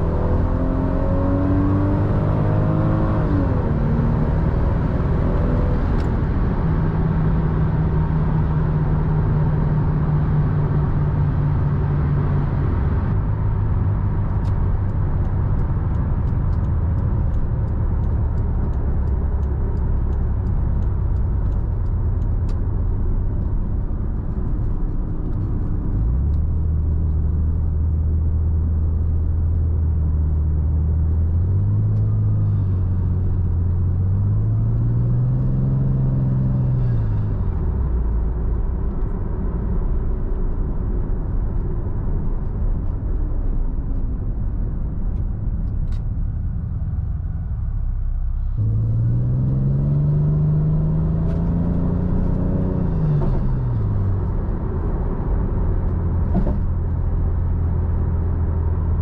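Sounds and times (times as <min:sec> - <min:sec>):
road noise: 0:00.0 - 0:59.0
car engine revving: 0:48.3 - 0:57.5.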